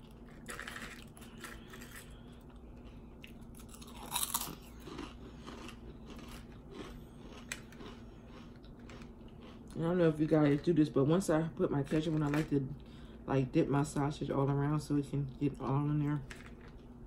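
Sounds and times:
chewing potato chips: 0.0 - 10.8.

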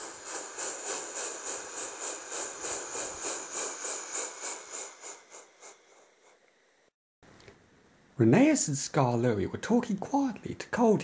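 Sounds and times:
steam locomotive chuffing: 0.0 - 6.4.

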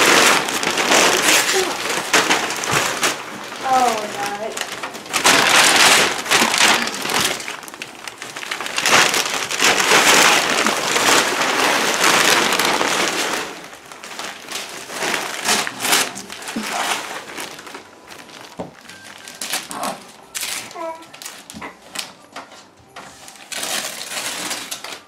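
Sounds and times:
paper crinkling: 0.0 - 25.0
wrapping paper tearing and rustling: 0.0 - 25.0.

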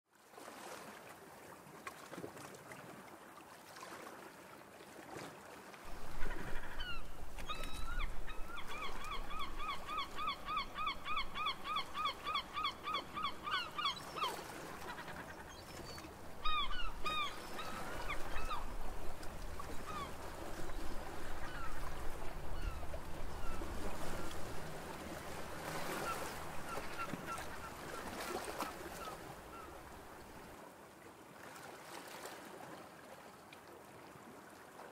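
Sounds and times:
bird honking calls: 6.0 - 15.6.

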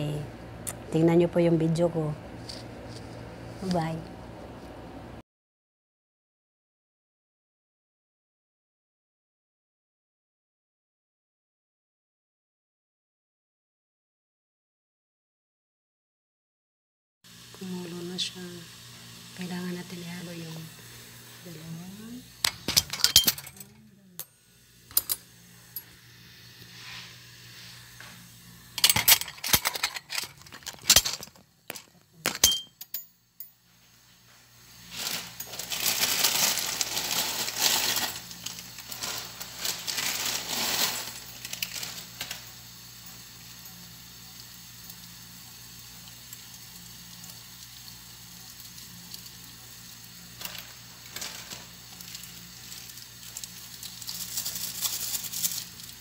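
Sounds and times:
steady low hum: 0.0 - 5.2, 17.4 - 44.1
plastic packets crinkling: 34.9 - 42.4, 50.4 - 56.0.

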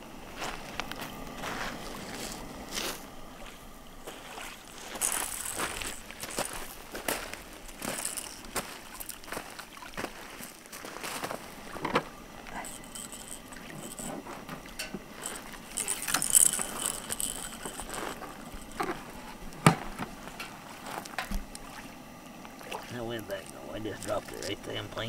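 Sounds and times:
tools clicking and scraping: 7.9 - 8.5, 12.5 - 21.6.

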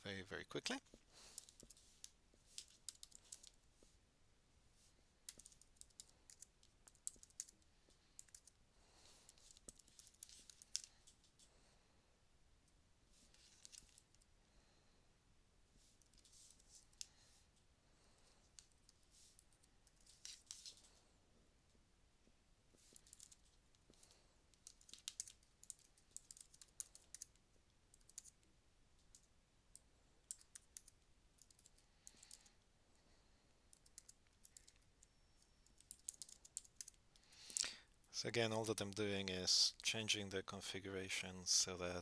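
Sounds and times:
computer keyboard typing: 2.6 - 3.7, 5.3 - 8.6, 9.2 - 11.2, 13.4 - 14.2, 22.9 - 23.5, 24.5 - 28.4, 29.1 - 32.5, 33.7 - 37.0.

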